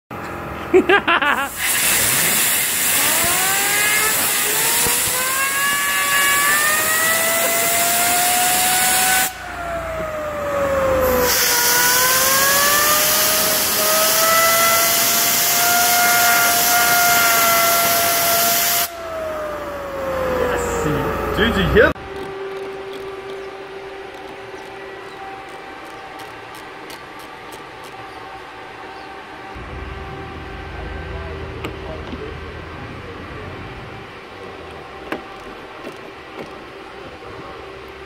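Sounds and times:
fidget spinner whining: 1.3s - 32.0s
air blow gun hissing: 1.4s - 9.4s, 11.0s - 19.0s.

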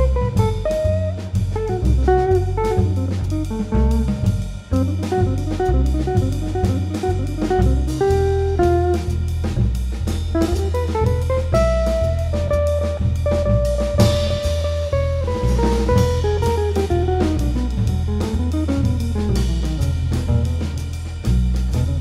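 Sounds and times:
electric guitar lines: 0.0s - 9.2s
double bass: 0.0s - 22.0s
drum kit: 0.0s - 22.0s.

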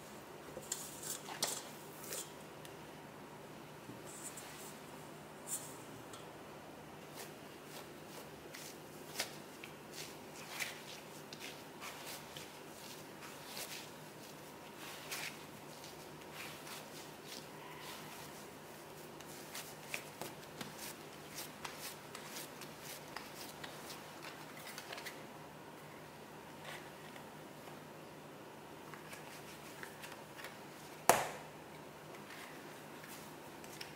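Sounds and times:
faint steady hum: 0.0s - 33.9s
hands kneading bread dough: 7.0s - 27.9s.

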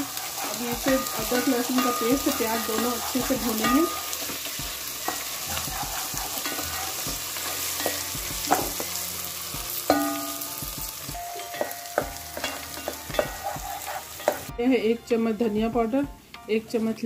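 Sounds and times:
wooden spatula scraping a pot: 0.0s - 8.9s, 12.4s - 14.5s
paste sizzling in hot oil: 0.0s - 14.8s.

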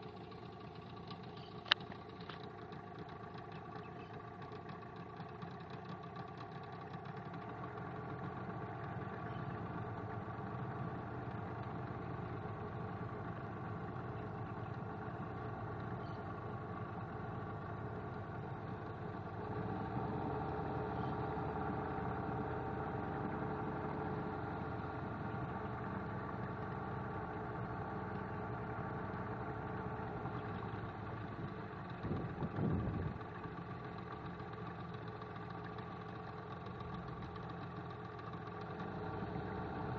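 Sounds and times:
motorboat engine running: 0.0s - 39.9s
brief low rumble: 32.0s - 33.2s.

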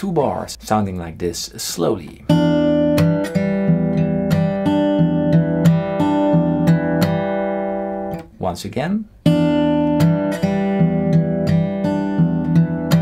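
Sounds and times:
fingerpicked acoustic guitar: 2.2s - 8.4s, 9.2s - 13.0s.

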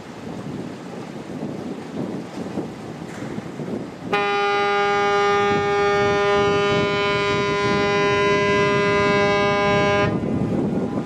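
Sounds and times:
water rushing: 0.0s - 11.0s
wind on microphone: 0.0s - 11.0s
ship's horn blast: 4.1s - 10.5s.

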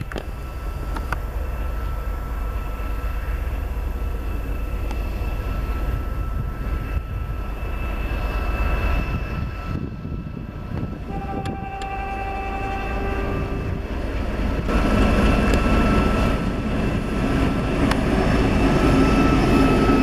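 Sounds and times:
thin high whine: 0.0s - 13.8s
locomotive engine rumble: 0.0s - 20.0s.

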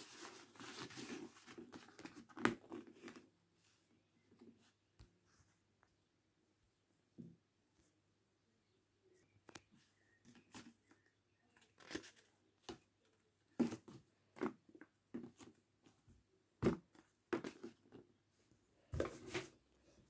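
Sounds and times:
paper crinkling and rustling: 11.5s - 12.4s.

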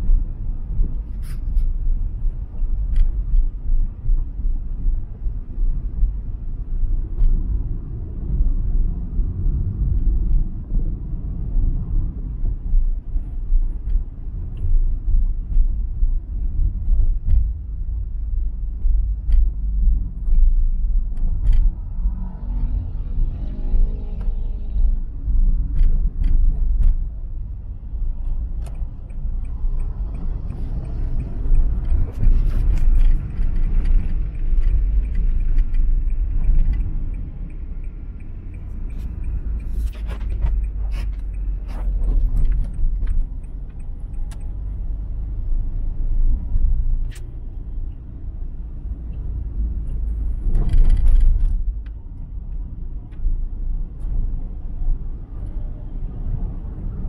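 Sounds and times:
vehicle driving on wet road: 0.0s - 57.0s
sharp clicks and knocks: 16.4s - 21.9s, 25.3s - 47.4s.

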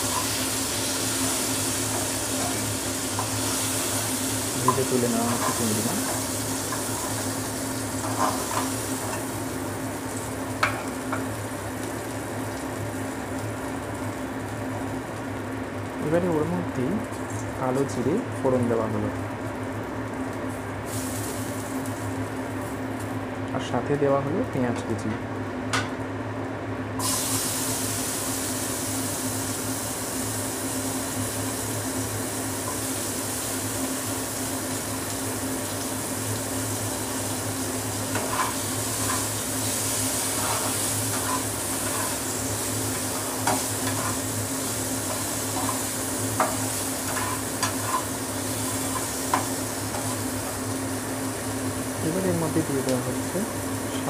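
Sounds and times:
onions sizzling in oil: 0.0s - 23.2s, 26.9s - 54.0s
spatula scraping pan: 40.2s - 42.2s, 46.4s - 50.2s.

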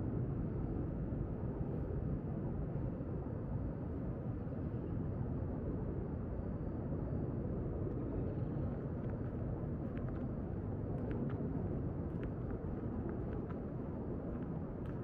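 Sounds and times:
low urban rumble: 7.3s - 15.0s.

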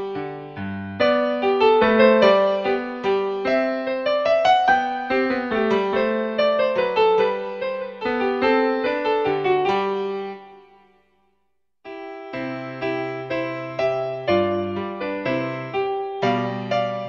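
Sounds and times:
piano music: 0.0s - 11.1s, 11.8s - 17.0s.

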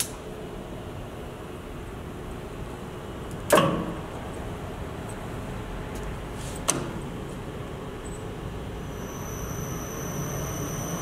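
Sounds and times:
steady machine hum: 0.1s - 11.0s.

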